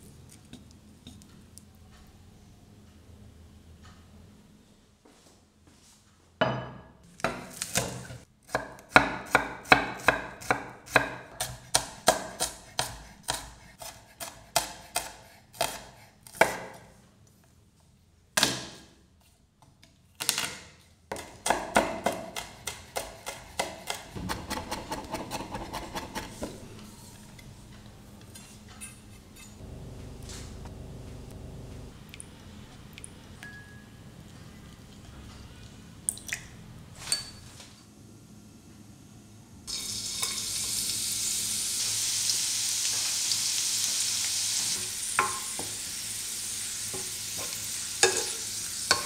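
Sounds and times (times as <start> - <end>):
knife chopping on wooden board: 7.3 - 16.8, 21.1 - 26.6.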